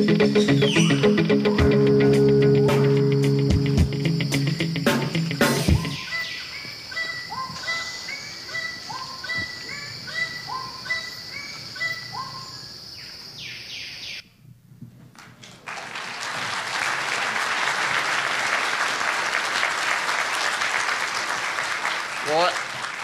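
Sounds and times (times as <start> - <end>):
bird calling: 0.0 - 1.7, 5.6 - 14.2
insect drone: 0.0 - 14.2
audience applauding: 15.3 - 23.0.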